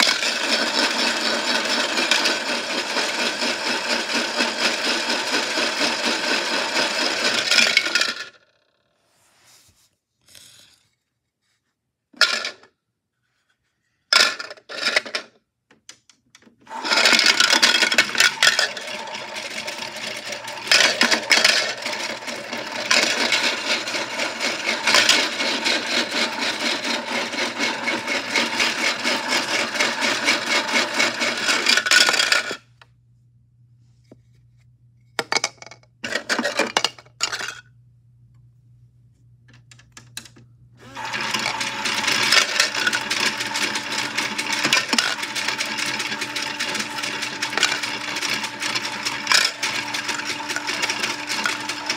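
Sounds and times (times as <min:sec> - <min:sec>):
cookies rattling in plastic drum: 0:00.0 - 0:08.4, 0:14.2 - 0:15.3, 0:16.7 - 0:32.6, 0:35.2 - 0:37.6, 0:41.0 - 0:51.9.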